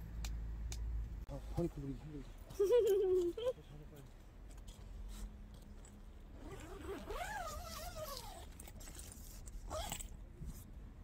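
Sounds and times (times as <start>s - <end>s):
zipper being worked: 6.4s - 10.1s.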